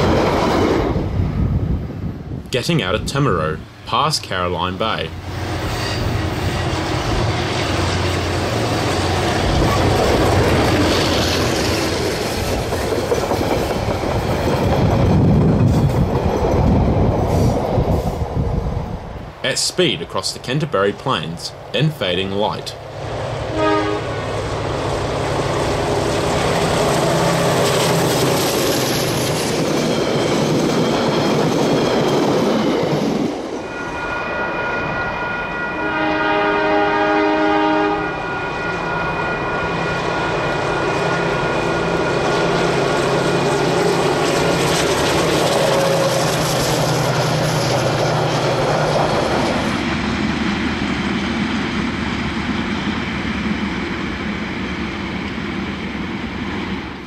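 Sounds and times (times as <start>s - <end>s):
train rumbling on rails: 0.0s - 57.0s
locomotive horn blast: 23.5s - 24.3s, 33.7s - 40.4s.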